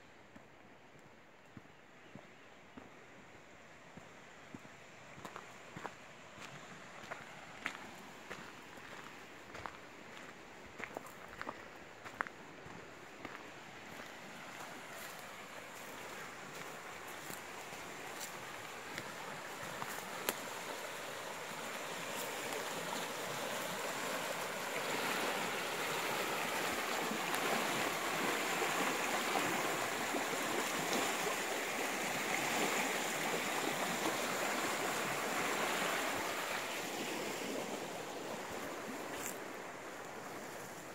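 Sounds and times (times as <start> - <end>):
water rushing over rocks: 14.7 - 40.4.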